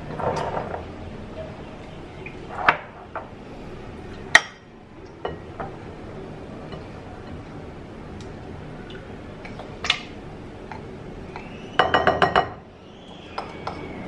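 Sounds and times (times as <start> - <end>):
glassware clinking: 11.8 - 12.6.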